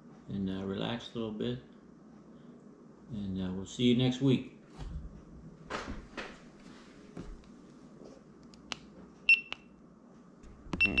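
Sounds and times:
soft rustles of movement: 4.6s - 9.2s.

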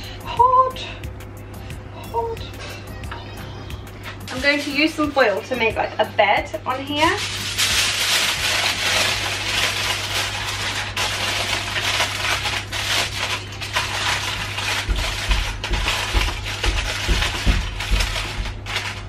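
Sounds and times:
aluminium foil crumpling: 4.0s - 5.9s, 6.6s - 19.0s.

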